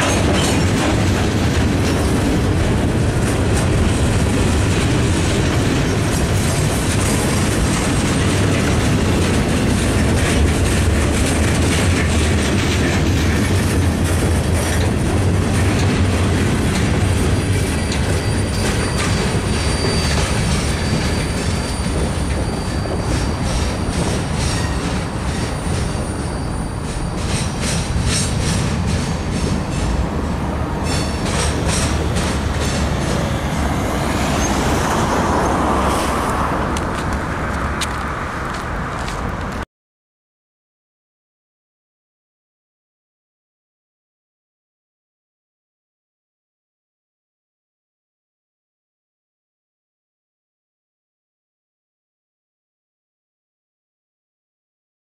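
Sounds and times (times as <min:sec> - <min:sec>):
clatter over rail joints: 0:00.0 - 0:39.6
train wheels rumbling on rail: 0:00.0 - 0:39.6
high wheel squeal: 0:17.1 - 0:36.7.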